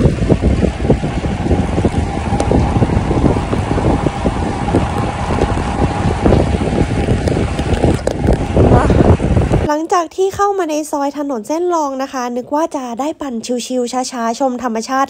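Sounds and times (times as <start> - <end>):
wind buffeting microphone: 0.0 - 9.7.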